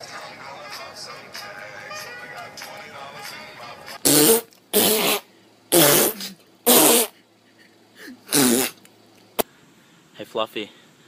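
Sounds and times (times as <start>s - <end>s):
fart-like sputtering: 4.0s - 7.2s, 8.3s - 8.8s.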